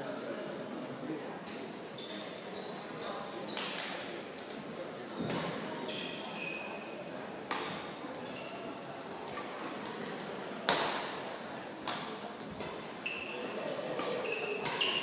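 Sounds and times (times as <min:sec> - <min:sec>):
shoes squeaking on court: 0:05.1 - 0:06.8, 0:08.1 - 0:08.8, 0:13.0 - 0:13.5, 0:14.1 - 0:15.0
racket hitting shuttlecock: 0:07.5 - 0:07.9, 0:10.6 - 0:11.2, 0:11.8 - 0:12.9, 0:13.9 - 0:15.0.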